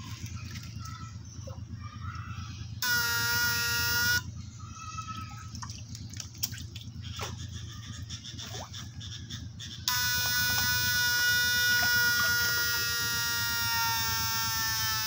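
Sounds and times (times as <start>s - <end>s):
water splashes and drips: 0.0s - 1.0s, 5.1s - 7.4s
electrofishing shocker buzzing: 2.8s - 4.3s, 9.8s - 15.0s
short faint buzzes: 9.9s - 15.0s.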